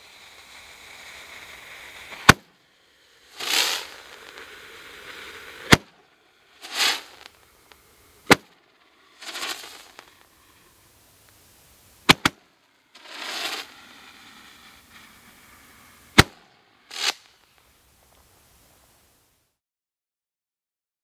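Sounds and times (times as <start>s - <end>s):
roman candle shots popping: 2.0s - 2.5s, 3.4s - 18.2s
short rushing burst: 3.4s - 10.8s, 12.0s - 17.4s.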